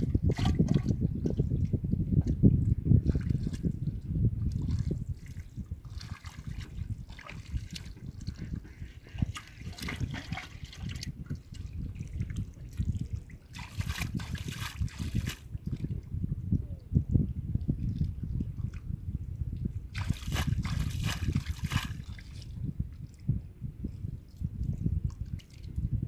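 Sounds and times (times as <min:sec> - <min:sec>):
hands splashing in muddy water: 0:04.5 - 0:15.8, 0:19.9 - 0:22.4.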